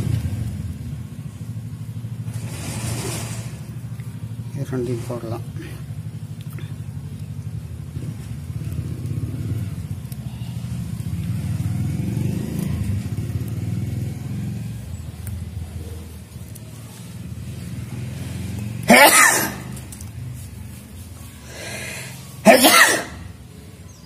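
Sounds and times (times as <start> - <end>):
vehicle engine running: 0.0 - 22.6
person's loud vocal burst: 22.4 - 23.2.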